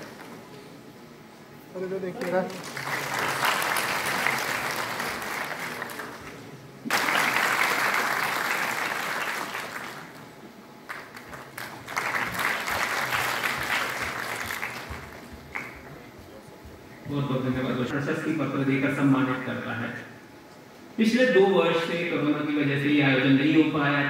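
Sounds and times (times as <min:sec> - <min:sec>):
audience clapping: 0:00.0 - 0:00.5, 0:02.1 - 0:16.8.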